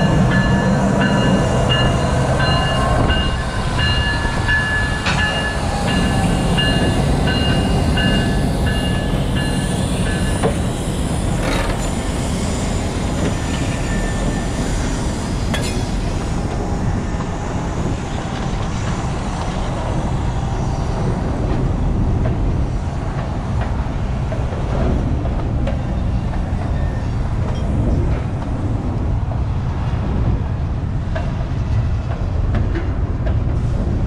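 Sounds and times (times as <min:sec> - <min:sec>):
steel wheels rumbling on rails: 0:00.0 - 0:34.0.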